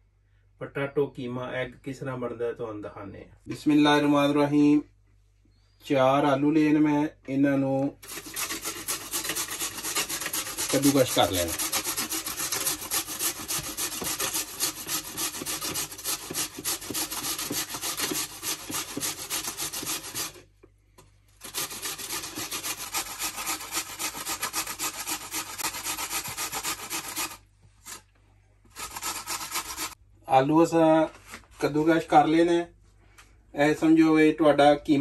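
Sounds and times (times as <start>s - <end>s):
potato rasping on a metal grater: 8.0s - 20.4s, 21.4s - 28.0s, 28.7s - 30.0s.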